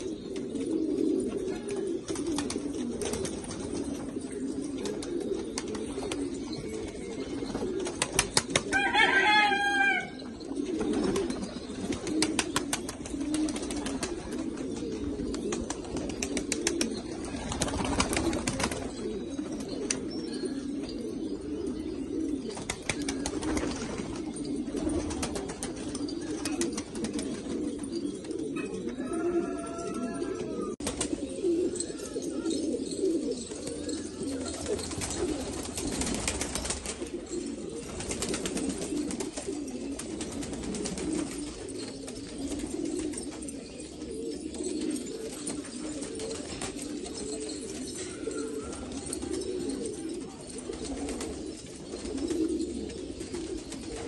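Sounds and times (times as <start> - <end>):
pigeons cooing: 0.0 - 54.0.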